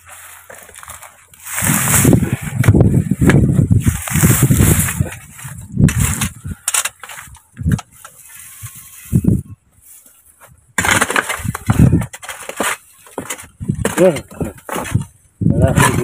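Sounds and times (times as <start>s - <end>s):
clods and stones scattering: 0.0s - 9.1s, 10.8s - 16.0s
hoe chopping into stony soil: 10.8s - 15.0s.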